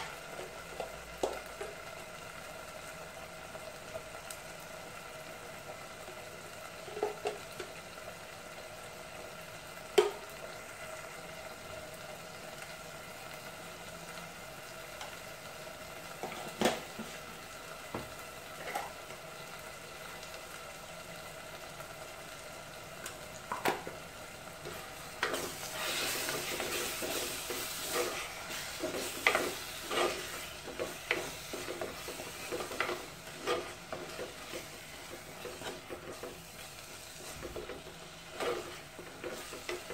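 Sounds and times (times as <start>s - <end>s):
frying sizzle: 0.0s - 39.9s
wooden spatula scraping clay pot: 25.2s - 39.9s.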